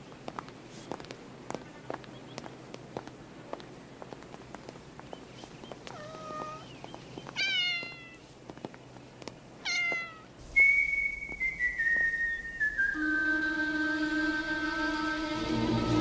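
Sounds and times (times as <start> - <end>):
animal crying: 5.9 - 6.7
background music with held note: 13.0 - 16.0.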